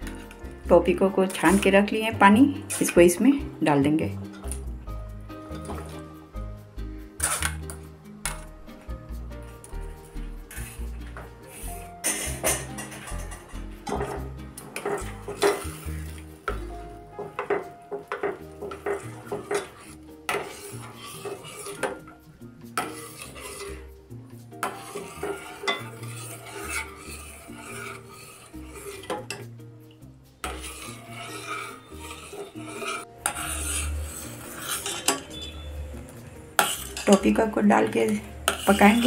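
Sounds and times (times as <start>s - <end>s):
spoon scraping and clinking in pan: 7.2s - 8.8s, 9.5s - 29.5s, 30.4s - 39.0s.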